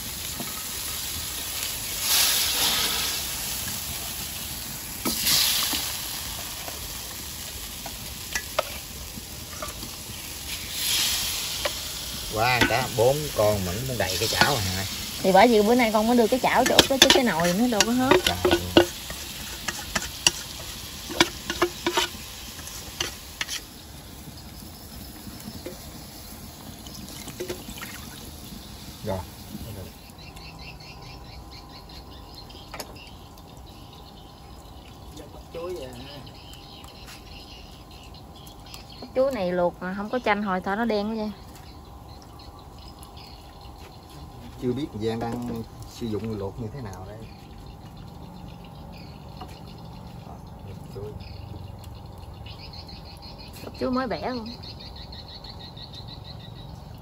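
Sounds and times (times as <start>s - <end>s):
sauce sizzling in frying pan: 0.0s - 50.3s, 50.9s - 57.0s
insects chirping: 0.0s - 57.0s
utensil clicking on pan: 16.5s - 23.7s.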